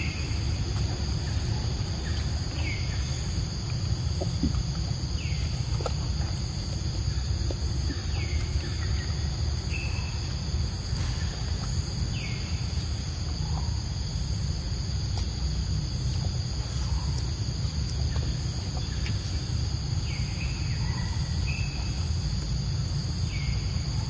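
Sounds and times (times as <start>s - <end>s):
low rumble: 0.0s - 14.7s
forest insects droning: 0.0s - 24.0s.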